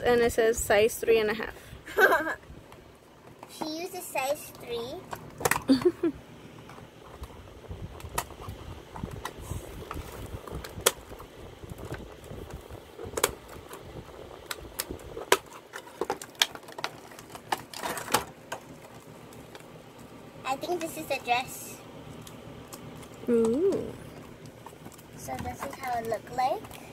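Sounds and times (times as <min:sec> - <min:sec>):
plastic wrap crinkling: 0:09.8 - 0:20.2.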